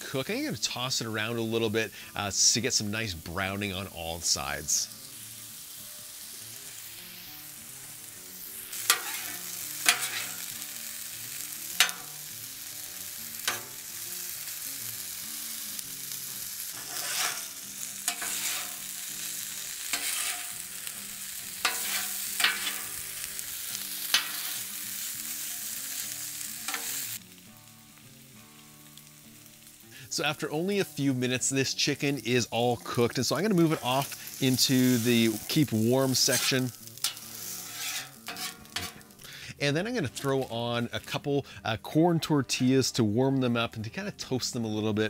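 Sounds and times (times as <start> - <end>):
chicken sizzling on griddle: 0.0 - 39.6
spatula clacking on griddle: 8.7 - 10.6, 11.6 - 12.3, 13.4 - 14.0, 16.8 - 20.9, 21.5 - 23.4, 24.0 - 24.7, 26.6 - 27.1, 36.3 - 39.2.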